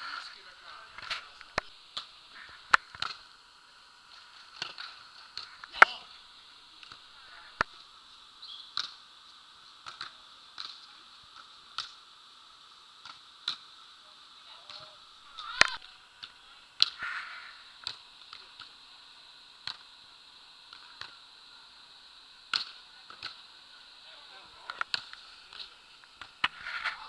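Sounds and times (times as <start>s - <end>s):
hands slapping volleyballs: 9.8s - 10.8s.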